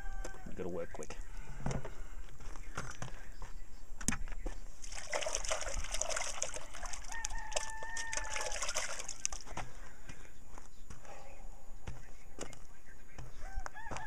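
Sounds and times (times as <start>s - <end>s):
rooster crowing: 0.0s - 0.7s, 6.6s - 9.2s, 13.4s - 14.0s.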